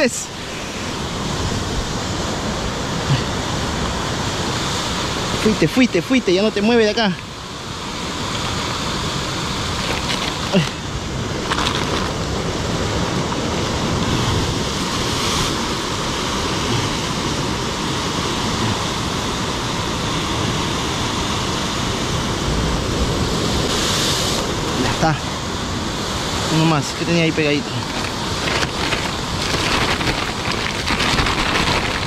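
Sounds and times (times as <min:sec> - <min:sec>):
surf breaking on rocks: 0:07.9 - 0:17.3, 0:26.5 - 0:32.0.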